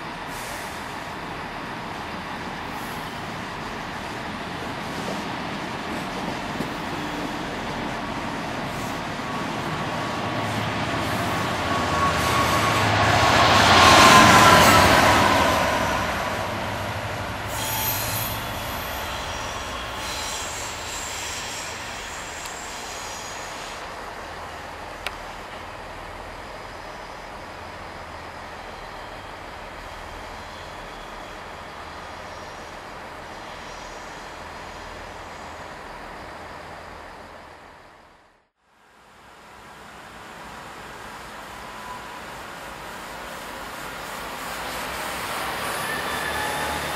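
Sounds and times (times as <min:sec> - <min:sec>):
diesel locomotive passing: 0:00.0 - 0:46.9
train wheel squeal: 0:08.6 - 0:16.5, 0:17.4 - 0:37.6, 0:41.4 - 0:46.9.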